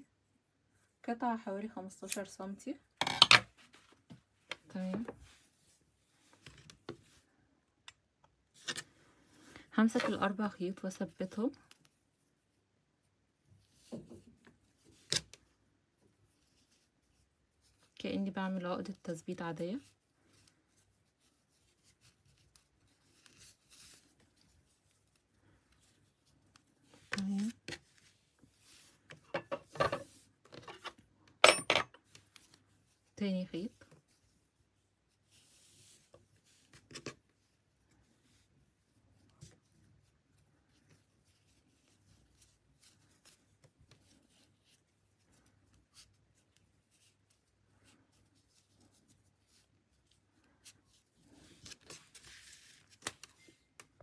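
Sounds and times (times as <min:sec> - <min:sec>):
cord rustling through fingers: 0:11.3 - 0:18.0, 0:19.7 - 0:31.3, 0:32.0 - 0:54.0.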